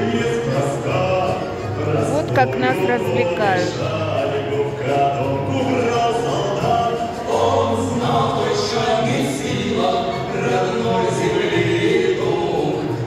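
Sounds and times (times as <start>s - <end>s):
choir singing: 0.0s - 13.0s.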